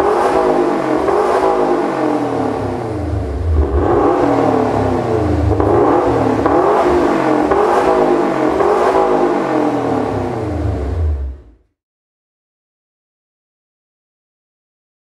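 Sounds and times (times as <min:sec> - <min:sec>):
car engine revving: 0:00.0 - 0:11.6.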